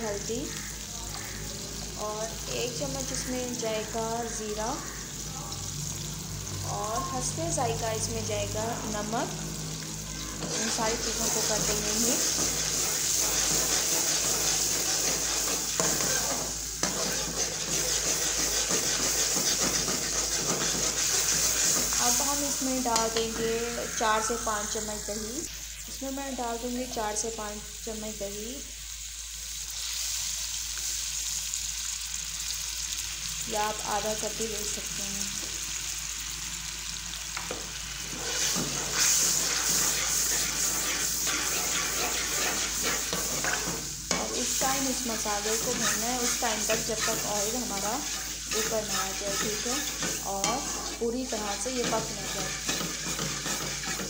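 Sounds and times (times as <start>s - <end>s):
spices sizzling in oil: 0.0s - 54.0s
spoon stirring and scraping: 10.4s - 22.2s, 38.1s - 54.0s.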